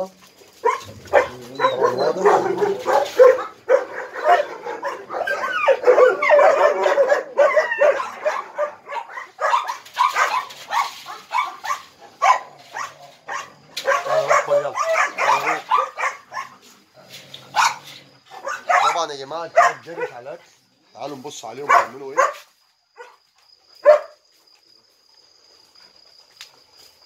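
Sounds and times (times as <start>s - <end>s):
dogs barking and yelping: 0.5s - 20.4s, 23.0s - 24.2s.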